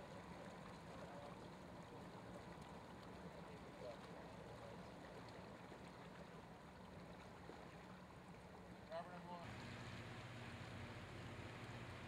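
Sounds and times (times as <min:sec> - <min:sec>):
outboard motor idling: 0:09.5 - 0:12.0.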